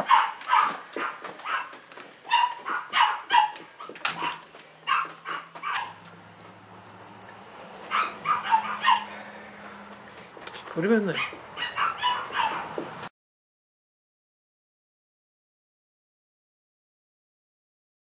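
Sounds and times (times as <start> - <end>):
puppy yapping: 0.0 - 6.1, 7.8 - 9.3, 11.1 - 12.8.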